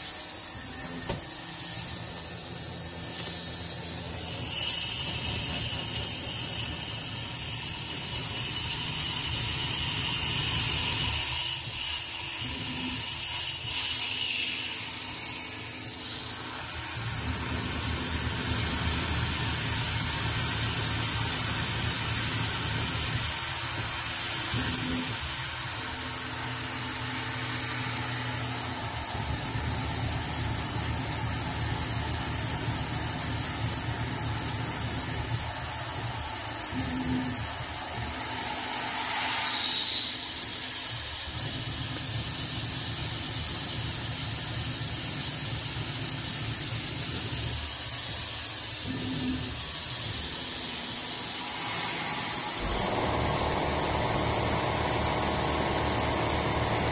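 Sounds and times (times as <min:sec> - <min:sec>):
milling machine cutting metal: 0:50.7 - 0:56.9.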